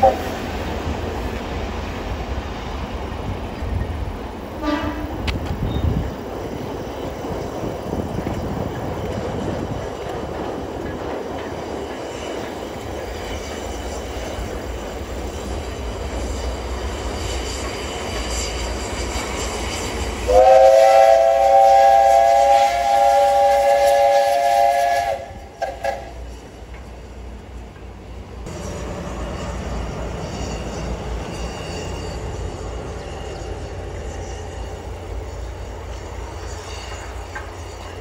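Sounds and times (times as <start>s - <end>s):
steam whistle blast: 0.0s - 0.3s, 4.6s - 5.1s, 20.2s - 26.3s
train wheels rumbling on rails: 0.0s - 38.0s.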